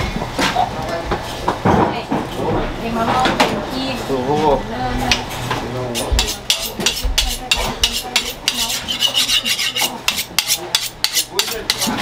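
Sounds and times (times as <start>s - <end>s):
rhythmic rasping scrapes: 5.9s - 12.0s.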